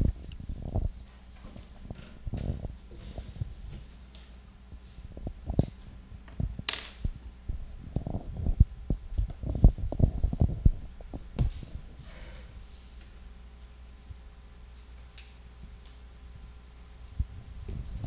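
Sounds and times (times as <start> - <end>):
microphone handling thumps: 0.0 - 4.0, 4.7 - 12.0, 17.2 - 18.0.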